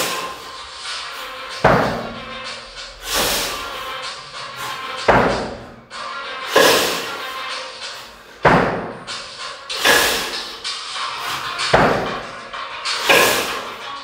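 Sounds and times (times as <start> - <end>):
kettlebells hitting: 1.5 - 4.0, 4.6 - 7.3, 7.9 - 13.8.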